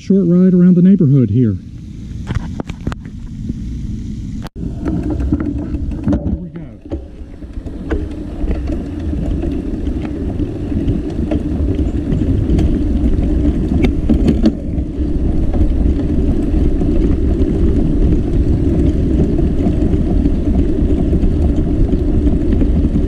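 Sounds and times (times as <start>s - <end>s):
wind buffeting microphone: 2.1s - 23.0s
tyres rolling on concrete: 4.6s - 23.0s.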